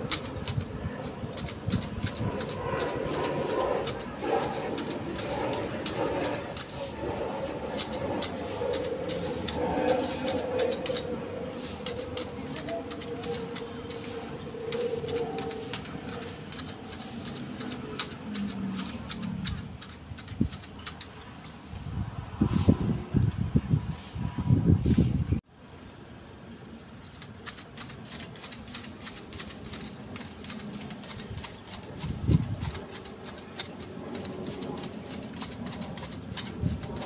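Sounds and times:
hedge shears snipping twigs: 0:00.0 - 0:21.7, 0:27.1 - 0:37.0.

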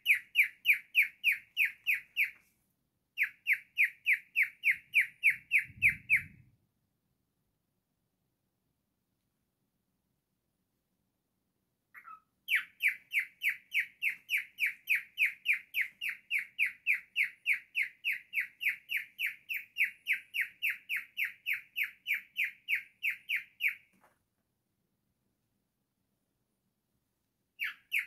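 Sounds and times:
cockatiel chirping: 0:00.0 - 0:02.5, 0:03.2 - 0:06.4, 0:11.9 - 0:23.9, 0:27.6 - 0:28.0.

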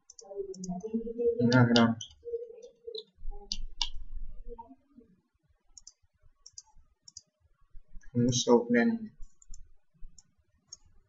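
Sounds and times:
computer mouse clicks: 0:00.0 - 0:00.8, 0:01.5 - 0:04.0, 0:05.8 - 0:07.3, 0:09.2 - 0:10.9.

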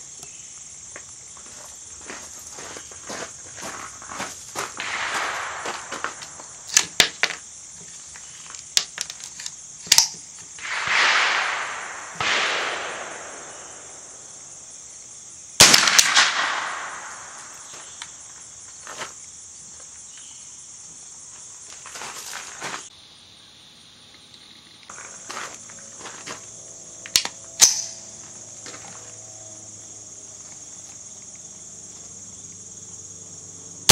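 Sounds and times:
rifle shots: 0:04.8 - 0:07.0, 0:10.6 - 0:14.5, 0:15.6 - 0:17.8.

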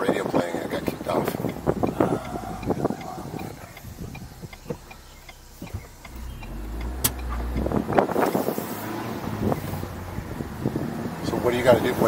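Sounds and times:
car engine running: 0:00.0 - 0:12.0
road noise: 0:00.0 - 0:12.0
sharp click: 0:03.4 - 0:07.8.

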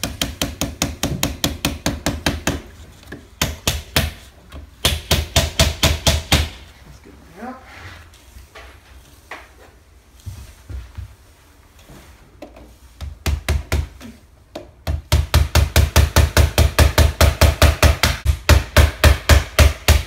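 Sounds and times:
hammer driving nails into wood: 0:00.0 - 0:06.6, 0:13.0 - 0:20.0.

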